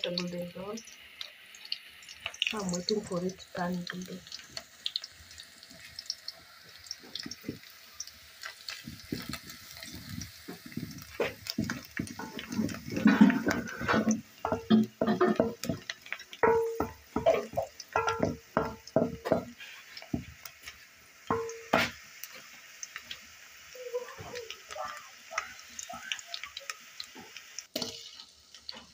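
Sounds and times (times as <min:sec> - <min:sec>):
spoon scraping metal pot: 0:11.2 - 0:19.8.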